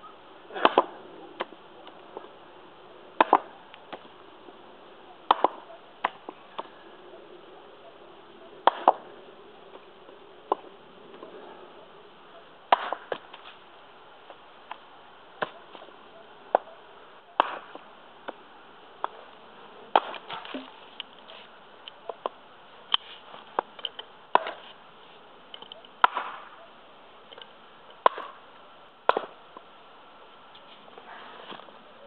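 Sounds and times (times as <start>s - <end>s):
axe chopping into log: 0.5s - 1.6s, 3.2s - 4.1s, 5.3s - 6.7s, 8.6s - 9.0s, 12.7s - 13.5s, 17.4s - 18.4s, 19.9s - 20.8s, 24.3s - 24.6s, 26.0s - 26.5s, 28.0s - 28.4s, 29.1s - 29.4s.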